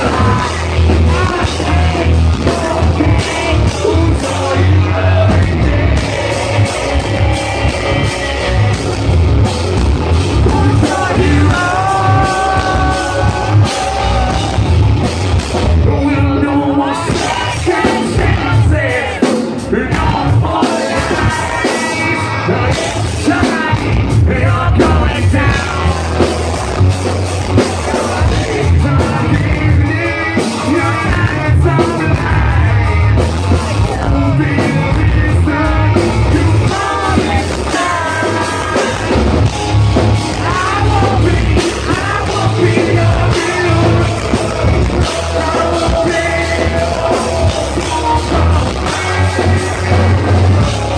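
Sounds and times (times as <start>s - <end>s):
person singing: 0.0s - 9.3s, 10.2s - 15.0s, 27.5s - 50.9s
live rock band: 0.0s - 50.9s.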